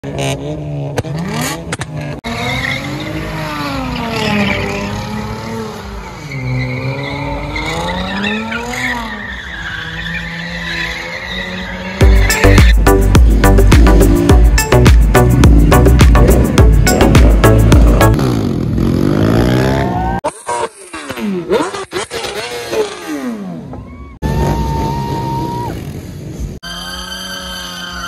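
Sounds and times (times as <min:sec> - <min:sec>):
car engine revving: 0:00.0 - 0:20.0
loud music with heavy beat: 0:12.0 - 0:18.2
tyres squealing: 0:26.6 - 0:28.0.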